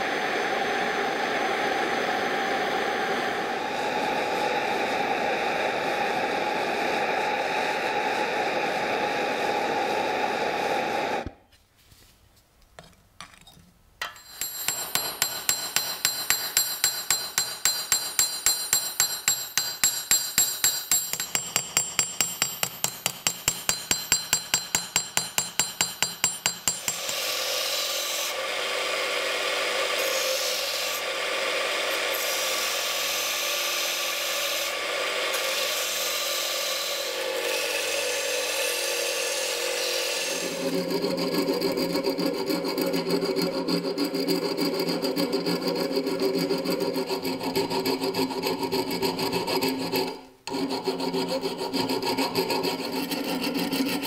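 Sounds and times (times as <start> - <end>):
hammer ringing on anvil: 14.0 - 27.4
electric grinder grinding metal: 21.1 - 54.0.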